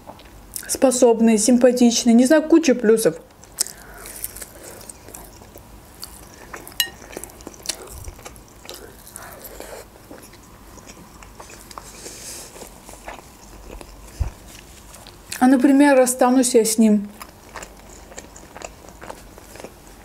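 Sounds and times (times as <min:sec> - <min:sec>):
person biting and chewing: 0:03.4 - 0:15.2.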